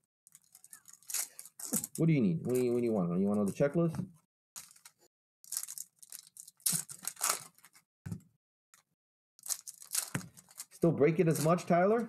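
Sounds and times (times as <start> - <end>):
foil wrappers tearing and crinkling: 0.3 - 2.0, 4.6 - 7.8, 9.4 - 11.6.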